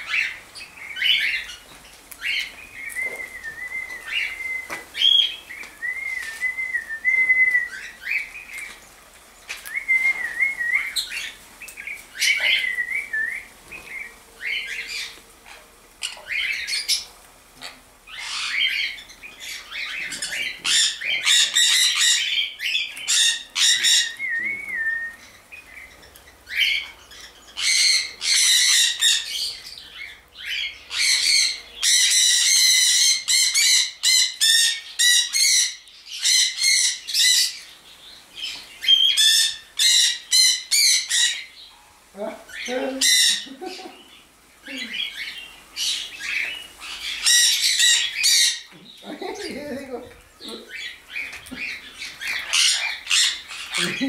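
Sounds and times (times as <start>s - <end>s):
parrots screeching: 0.0s - 1.6s, 12.2s - 12.9s, 14.4s - 24.8s, 25.8s - 37.8s, 38.4s - 41.6s, 42.4s - 48.8s, 50.4s - 54.0s
wavering whistled chirps: 2.8s - 8.3s, 9.6s - 11.2s, 12.2s - 13.5s, 23.7s - 25.4s.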